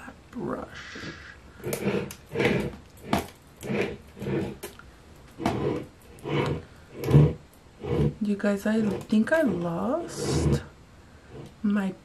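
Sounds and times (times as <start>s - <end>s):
makeup brushes clattering: 8.2s - 10.6s.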